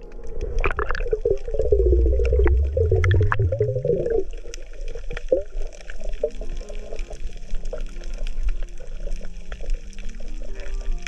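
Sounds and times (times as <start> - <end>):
underwater gurgling and bubbling: 0.0 - 11.0
low warbling rising in pitch: 1.0 - 4.3.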